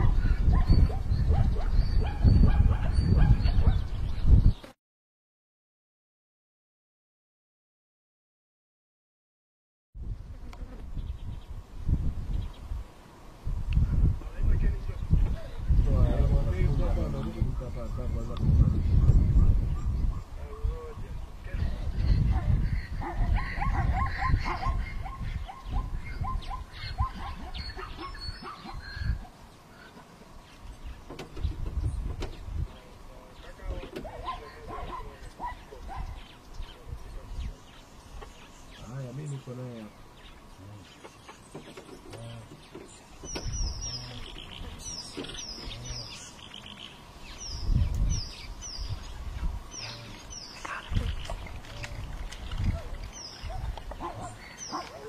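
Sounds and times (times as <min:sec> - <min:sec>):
small bird chirping: 0:40.2 - 0:55.0.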